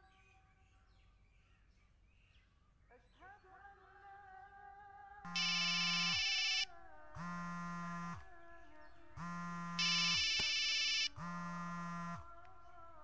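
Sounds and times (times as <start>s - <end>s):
electronic ringtone tune: 5.3s - 6.7s, 9.8s - 11.1s
phone vibration buzzing: 5.3s - 8.4s, 9.1s - 12.8s.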